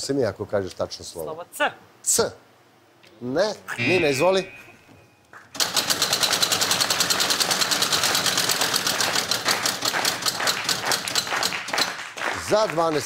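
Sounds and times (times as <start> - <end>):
prize wheel clicking ratchet: 5.6 - 12.0.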